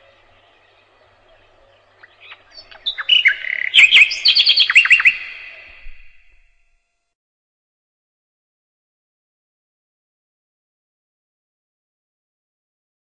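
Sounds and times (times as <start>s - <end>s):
nightingale singing: 0.0s - 6.6s.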